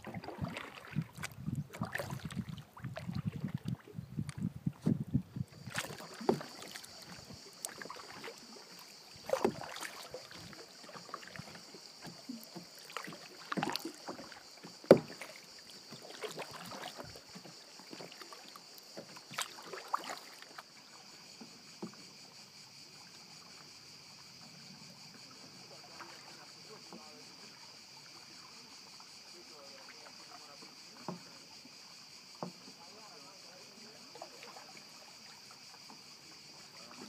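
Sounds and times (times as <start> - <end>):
canoe paddle splashing water: 0.0 - 37.0
cicadas buzzing: 0.0 - 37.0.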